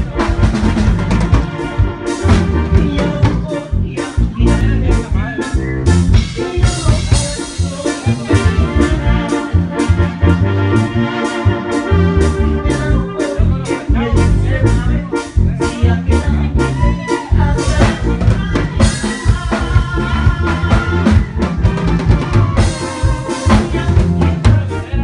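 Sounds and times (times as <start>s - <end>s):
drum kit beat: 0.0s - 25.0s
electronic keyboard organ tune: 0.0s - 25.0s.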